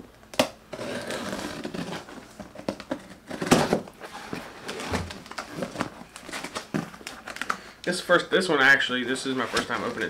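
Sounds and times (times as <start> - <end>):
packaging rustling: 1.3 - 7.8, 9.4 - 10.0.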